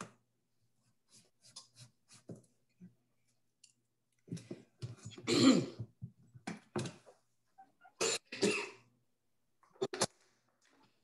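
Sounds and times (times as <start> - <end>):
woman clearing her throat: 5.2 - 5.8
woman coughing: 5.2 - 5.8, 8.0 - 8.8.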